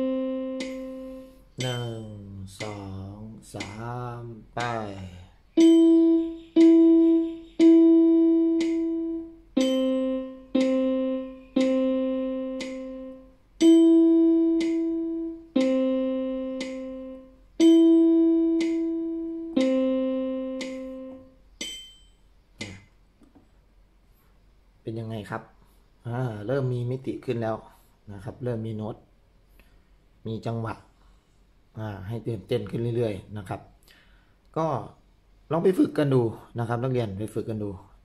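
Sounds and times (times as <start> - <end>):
electronic keyboard melody: 0.0 - 2.1, 5.6 - 21.4.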